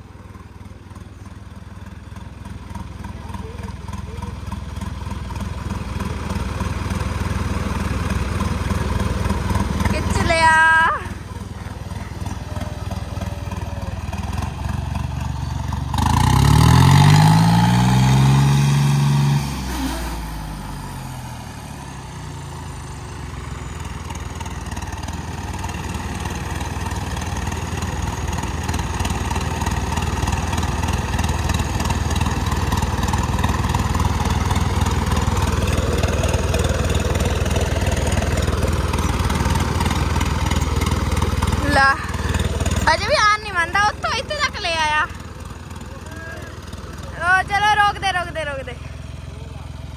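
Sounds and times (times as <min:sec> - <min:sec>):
tractor engines labouring under load: 0:00.0 - 0:49.9
engine revving sharply: 0:15.9 - 0:21.2.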